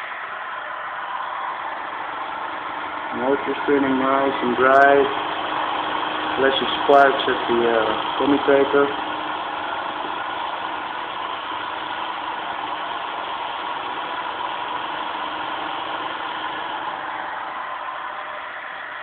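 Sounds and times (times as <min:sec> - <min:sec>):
electric motor buzzing whir: 0:02.2 - 0:17.3.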